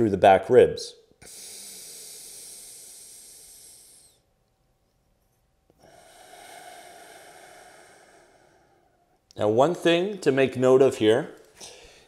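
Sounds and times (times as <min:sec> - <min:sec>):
slow deep breaths: 0:01.2 - 0:04.5, 0:05.7 - 0:09.4, 0:11.4 - 0:12.0.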